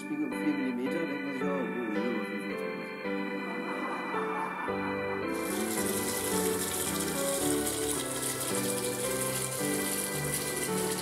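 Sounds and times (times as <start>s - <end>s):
sustained keyboard music: 0.0s - 11.0s
tap water running into bathtub: 5.3s - 11.0s.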